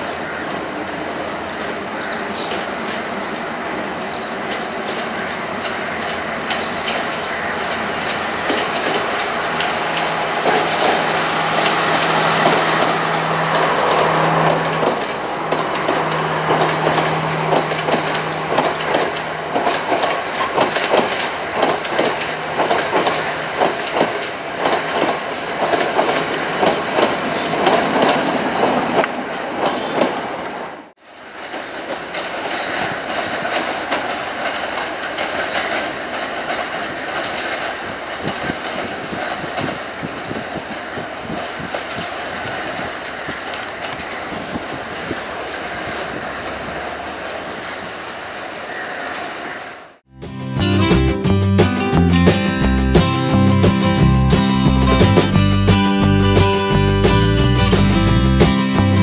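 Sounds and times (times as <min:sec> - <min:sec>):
diesel train engine drone: 0:00.0 - 0:59.0
train wheels clattering: 0:04.0 - 0:30.5, 0:31.2 - 0:47.2.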